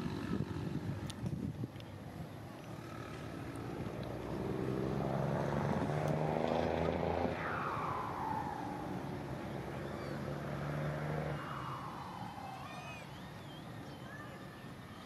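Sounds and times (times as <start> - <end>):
motor vehicle passing by: 2.6 - 14.6
faint high chirps: 11.3 - 15.0.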